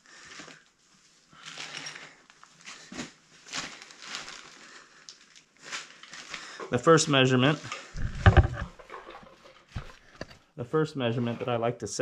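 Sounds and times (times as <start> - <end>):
plastic sheeting rustling: 0.0 - 8.1.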